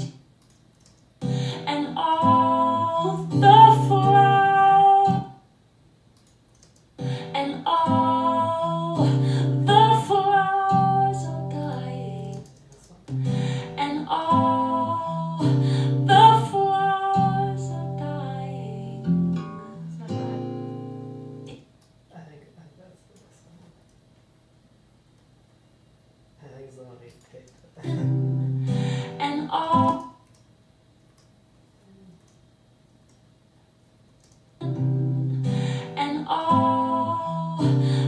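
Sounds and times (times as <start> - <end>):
acoustic guitar: 1.2 - 5.4, 7.0 - 12.4, 13.1 - 21.6, 27.8 - 30.2, 34.6 - 38.0
woman singing: 1.4 - 5.4, 7.0 - 12.4, 13.2 - 20.4, 28.9 - 30.2, 34.6 - 38.0.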